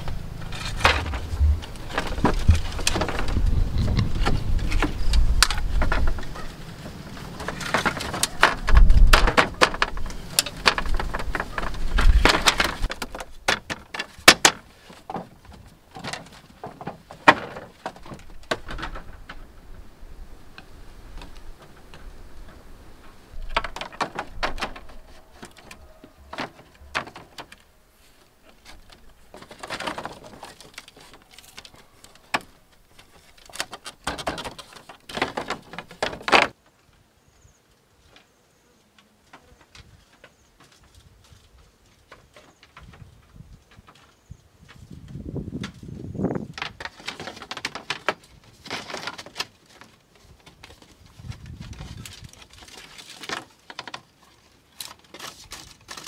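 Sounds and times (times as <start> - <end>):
bamboo poles knocking: 0.0 - 19.6, 23.4 - 27.6, 28.5 - 36.6.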